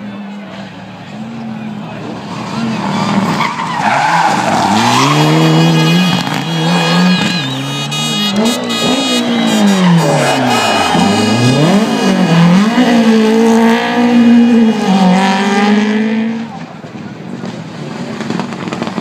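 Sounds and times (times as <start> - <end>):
rally car engine revving: 0.2 - 19.0
tyres squealing: 2.3 - 12.3.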